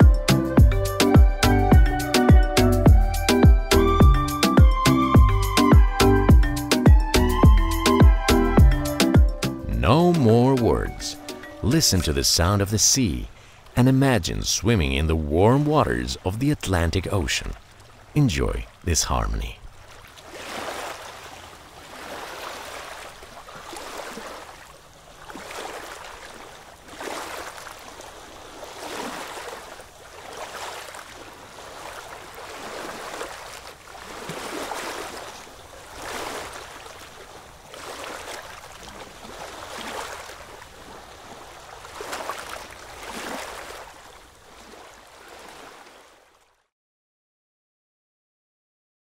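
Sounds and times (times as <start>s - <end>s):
surf washing up beach: 9.8s - 46.2s.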